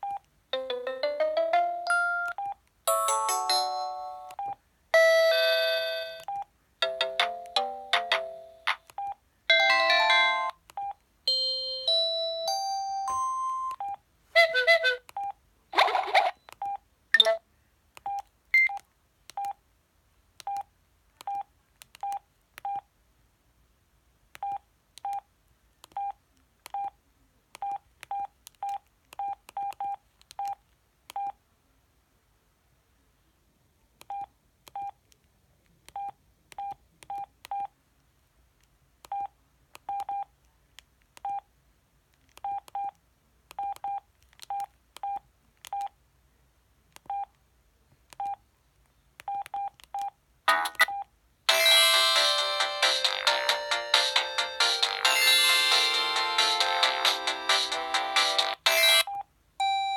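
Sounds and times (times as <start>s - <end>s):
keypad beeps: 16.4s - 17.4s, 18.0s - 18.8s, 43.6s - 45.9s, 49.3s - 51.1s, 58.9s - 59.9s.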